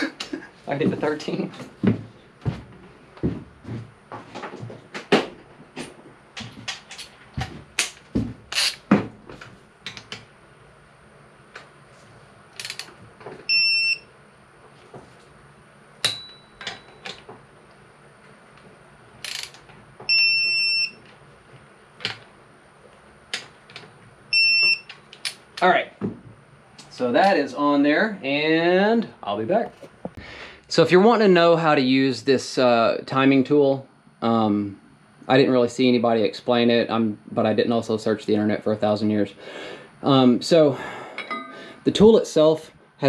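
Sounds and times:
ratchet clicking: 0:08.5 - 0:08.8, 0:12.6 - 0:12.9, 0:19.2 - 0:19.6
torque wrench beeping: 0:08.5 - 0:08.8, 0:13.5 - 0:14.1, 0:19.2 - 0:21.0, 0:24.3 - 0:25.0.

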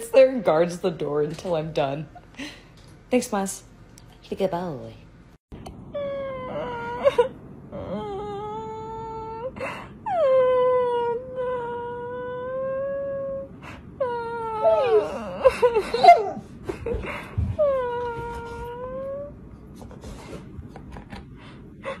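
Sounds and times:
person fake-crying wails: 0:06.0 - 0:13.5, 0:14.1 - 0:16.4.

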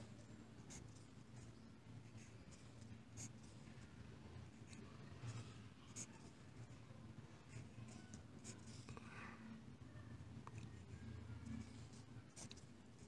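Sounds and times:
pen scratching on paper: 0:00.6 - 0:03.7, 0:04.4 - 0:06.8, 0:11.0 - 0:13.0.

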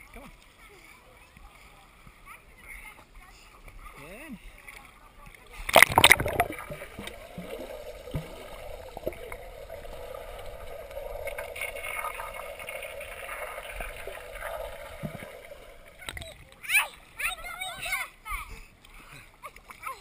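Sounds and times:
underwater pool noise: 0:04.6 - 0:17.2.

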